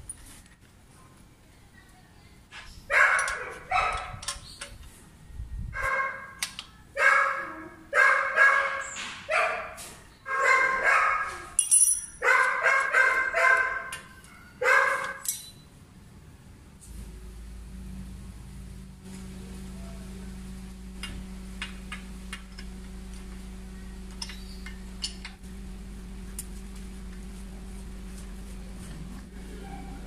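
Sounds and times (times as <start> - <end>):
dog barking: 2.9 - 4.2, 5.8 - 6.4, 7.0 - 11.6, 12.2 - 15.2, 29.4 - 30.0.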